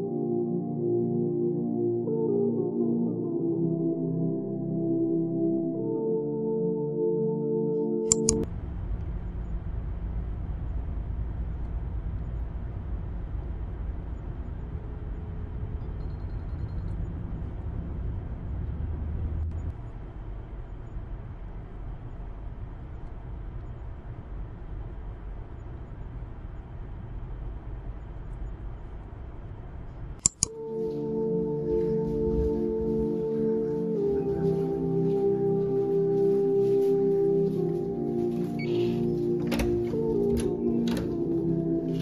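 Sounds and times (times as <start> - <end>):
sharp clicks: 8.1 - 8.5, 30.2 - 30.5
car road and engine rumble: 8.5 - 30.2.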